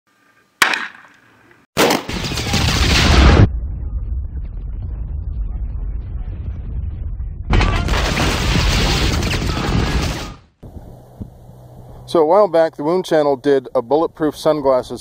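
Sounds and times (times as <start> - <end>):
gunshot: 0.6 - 1.1, 1.8 - 3.5, 7.5 - 10.5
steady low rumble: 3.0 - 7.9, 10.6 - 12.2.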